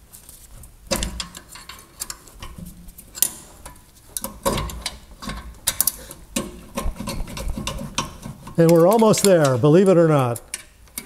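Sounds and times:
wrench clicking and knocking on metal: 4.2 - 9.6.

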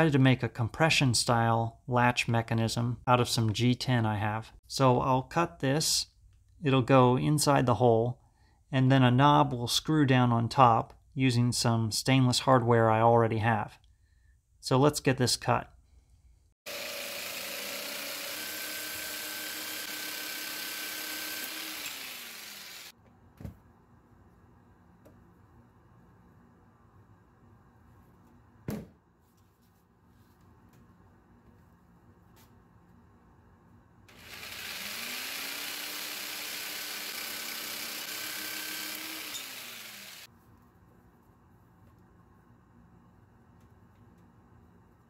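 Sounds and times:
jigsaw cutting: 16.7 - 22.9, 34.1 - 40.3.

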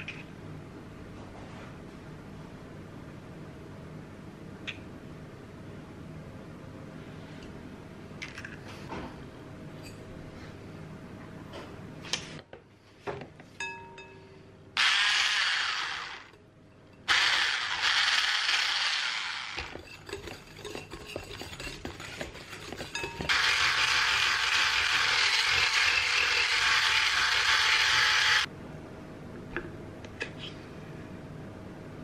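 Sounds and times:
electric whisk whirring: 14.8 - 16.4, 17.1 - 19.9, 23.2 - 28.5
whisk rattling against glass bowl: 19.7 - 23.3.

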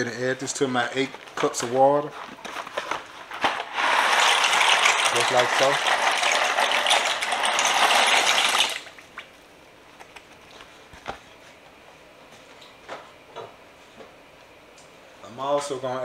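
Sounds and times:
dry pasta pouring into a pot: 3.8 - 8.9.

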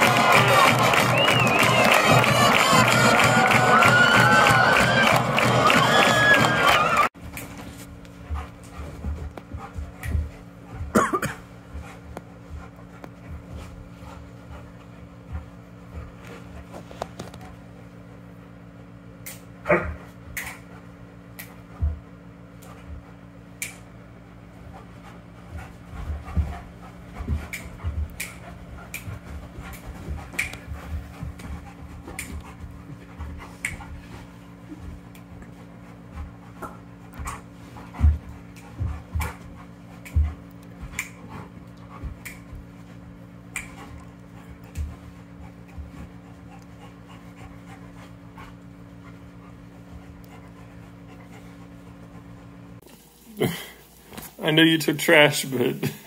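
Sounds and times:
steady low hum: 0.0 - 56.0
dog panting: 8.1 - 17.6, 20.5 - 23.5, 24.2 - 52.8.

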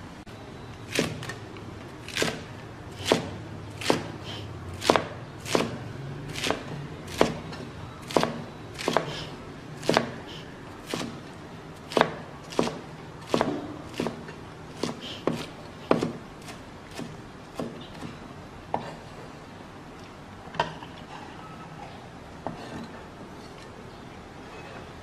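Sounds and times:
cleaver chopping on wooden block: 4.8 - 5.8, 8.1 - 10.2, 11.9 - 16.2.

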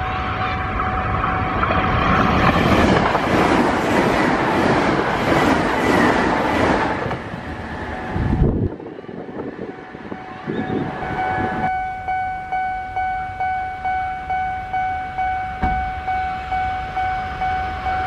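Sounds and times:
train wheels rushing on rail: 0.0 - 11.7
wind gust on microphone: 1.1 - 11.7.

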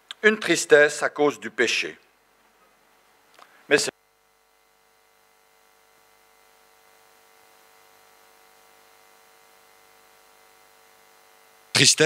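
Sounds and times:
faint electrical hum with hiss: 0.0 - 12.0.

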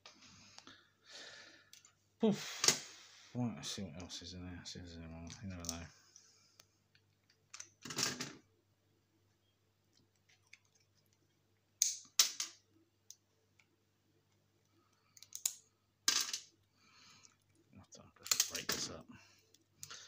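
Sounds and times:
pliers clicking and scraping metal: 15.0 - 16.5.

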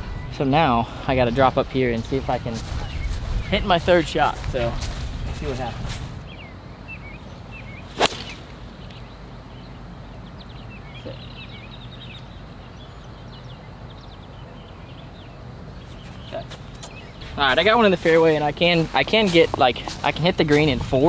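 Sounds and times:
golf club striking ball: 8.0 - 8.5.

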